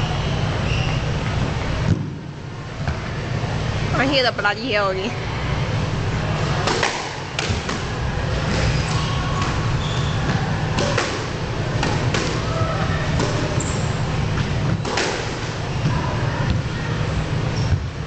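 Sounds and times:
steady low hum: 0:00.0 - 0:18.0
squash ball smacks: 0:06.6 - 0:07.9, 0:10.8 - 0:12.6.

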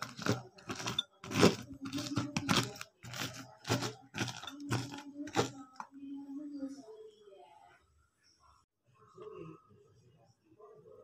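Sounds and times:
knife cutting crisp vegetables: 0:00.0 - 0:05.8.

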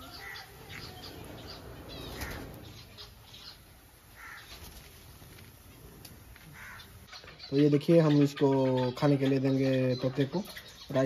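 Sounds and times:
bird flapping wings in cage: 0:01.9 - 0:02.7, 0:04.4 - 0:05.4.

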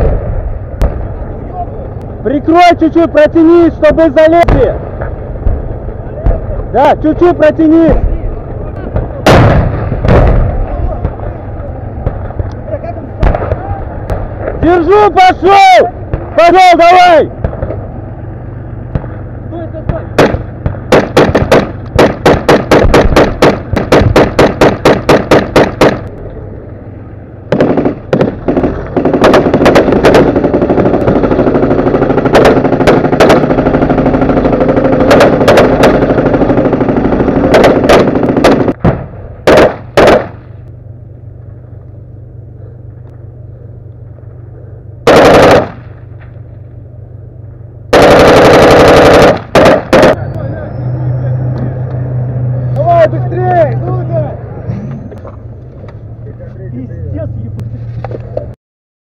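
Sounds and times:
low steady hum: 0:00.0 - 0:58.6
automatic gunfire: 0:19.9 - 0:26.1, 0:27.5 - 0:40.5, 0:45.1 - 0:46.0, 0:47.9 - 0:50.2.

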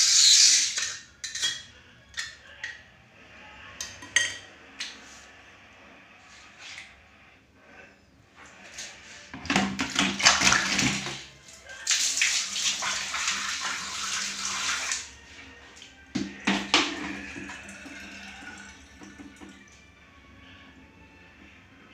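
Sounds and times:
water gushing into drain: 0:09.5 - 0:15.1, 0:16.2 - 0:19.6
water splashing onto tiled floor: 0:09.9 - 0:15.1.

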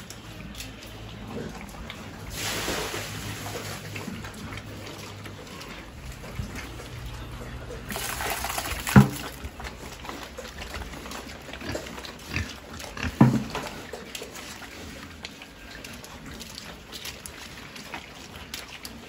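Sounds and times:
pigs chomping and slurping feed: 0:00.0 - 0:19.0
pig grunts: 0:09.7 - 0:16.7.

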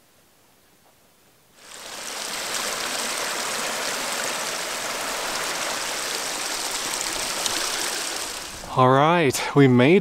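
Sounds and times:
stream rushing over rocks: 0:01.6 - 0:08.7.

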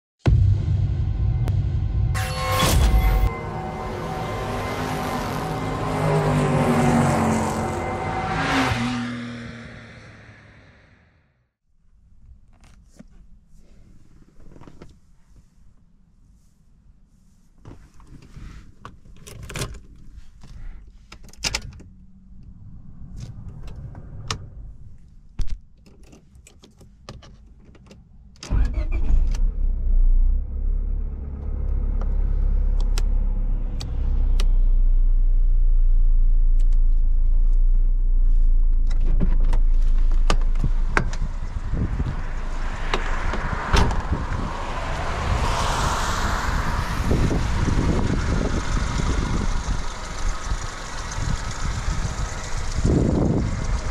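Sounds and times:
rushing noise: 0:00.3 - 0:11.0, 0:40.8 - 0:50.0
car engine starting and running: 0:00.3 - 0:11.2, 0:19.0 - 0:53.9.

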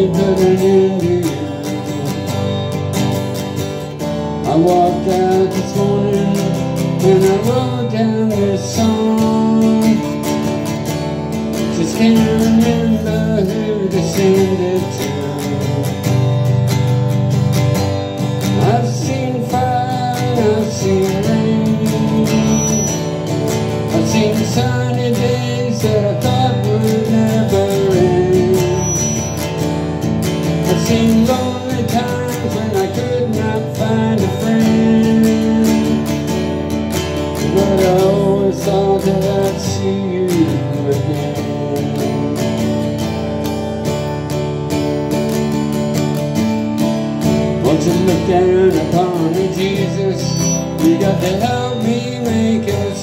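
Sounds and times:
acoustic guitar strumming: 0:00.0 - 0:53.0
harmonica bending notes: 0:19.5 - 0:32.5.

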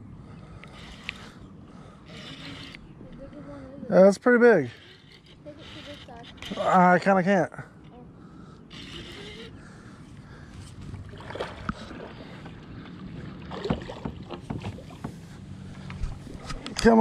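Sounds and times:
water sloshing against kayak hull: 0:10.1 - 0:17.0.

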